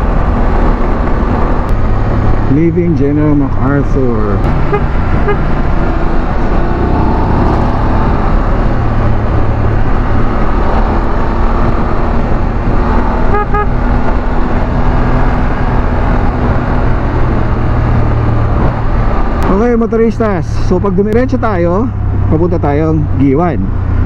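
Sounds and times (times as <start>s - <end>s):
wind rush: 0.0s - 19.5s
motorcycle engine cruising: 0.0s - 24.0s
horn double beep: 4.7s - 5.5s, 13.3s - 13.7s.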